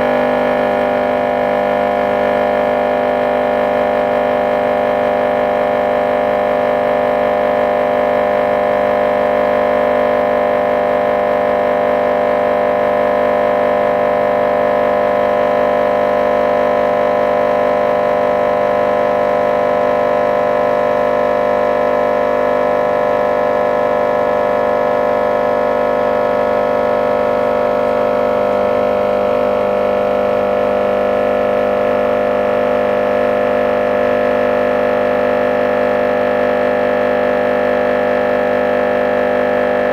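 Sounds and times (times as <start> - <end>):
subwoofer buzzing test tone: 0.0 - 39.9.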